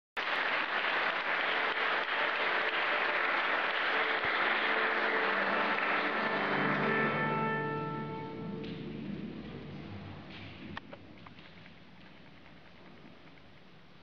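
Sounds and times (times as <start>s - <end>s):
audience applauding: 0.2s - 9.5s
faint held instrument notes: 4.0s - 10.4s.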